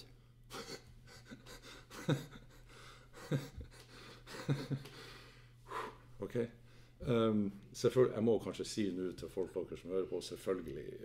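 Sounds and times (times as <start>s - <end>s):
man stifling laughter: 0.5s - 4.9s.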